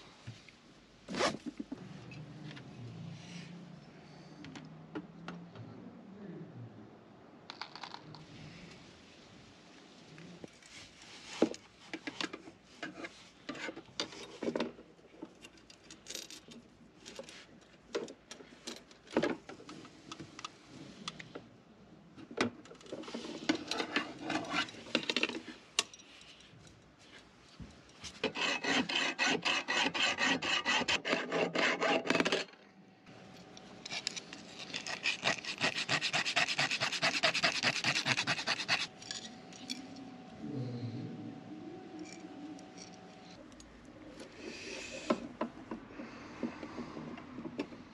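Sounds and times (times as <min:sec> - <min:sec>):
file rasping on metal tube: 0:28.2 - 0:32.2, 0:33.9 - 0:38.9
tool scrapes and clicks: 0:28.2 - 0:32.5, 0:33.8 - 0:39.3.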